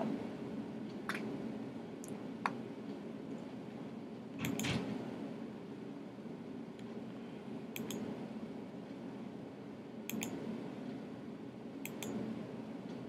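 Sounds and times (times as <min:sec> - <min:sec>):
low room hum: 0:00.0 - 0:13.0
computer mouse clicks: 0:04.4 - 0:04.8, 0:07.8 - 0:08.1, 0:10.1 - 0:10.4, 0:11.8 - 0:12.2.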